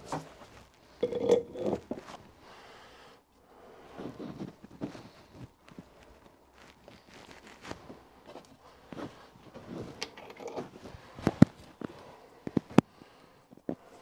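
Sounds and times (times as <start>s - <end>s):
handling rustle: 4.0s - 12.8s.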